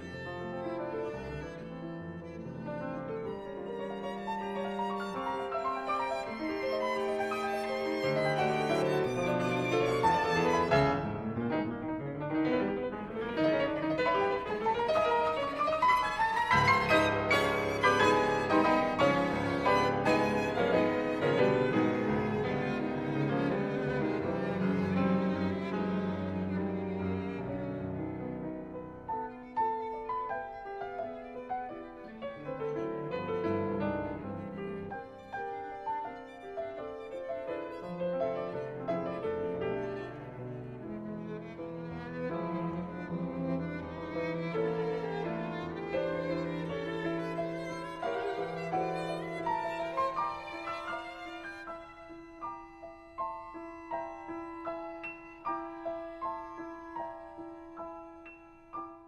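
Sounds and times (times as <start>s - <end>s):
cello: 0.0s - 59.0s
piano: 0.0s - 59.0s
violin: 0.0s - 59.0s.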